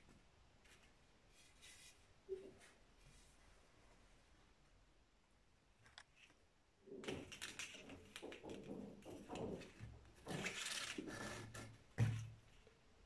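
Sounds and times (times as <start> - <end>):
rustling and scraping of cord and slats: 6.2 - 11.8.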